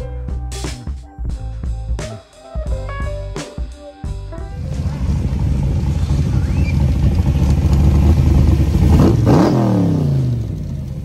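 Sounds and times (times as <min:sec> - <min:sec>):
car engine rumbling passing by: 0:04.5 - 0:11.0.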